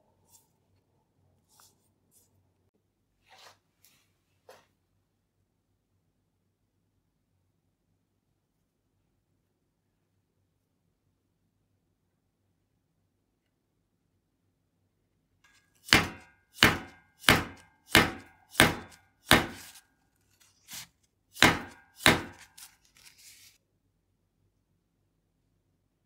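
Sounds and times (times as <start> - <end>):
soft rustle: 22.5 - 23.6.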